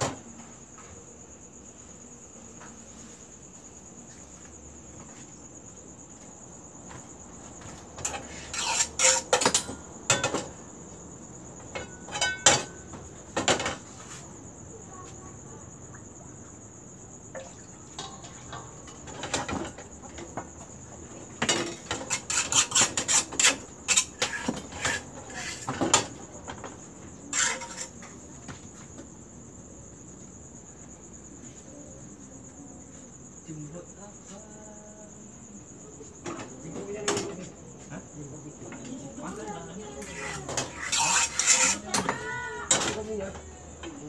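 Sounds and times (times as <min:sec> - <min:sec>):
high cricket chirping: 0:00.0 - 0:44.0
metal cookware clattering: 0:08.0 - 0:10.6, 0:11.7 - 0:12.8, 0:18.0 - 0:20.2, 0:27.3 - 0:28.0, 0:40.0 - 0:43.0.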